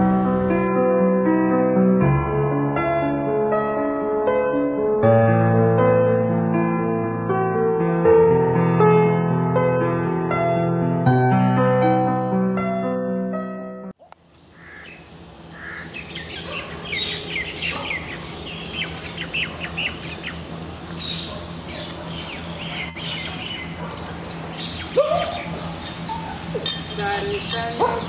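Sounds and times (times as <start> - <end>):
piano music: 0.0 - 14.0
birds chirping: 14.0 - 28.0
steady low hum: 14.2 - 28.0.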